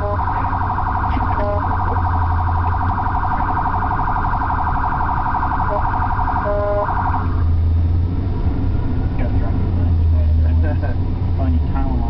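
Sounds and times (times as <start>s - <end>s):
police siren warbling: 0.0s - 7.7s
engine and road rumble: 0.0s - 12.0s.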